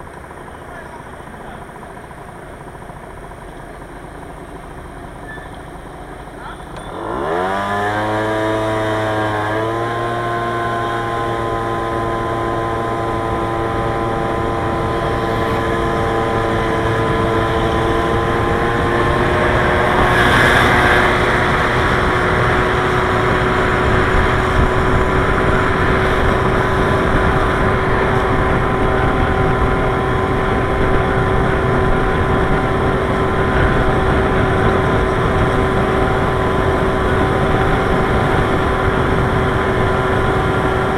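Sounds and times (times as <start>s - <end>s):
motorcycle engine: 0.0s - 40.9s
wind and road noise: 0.0s - 40.9s.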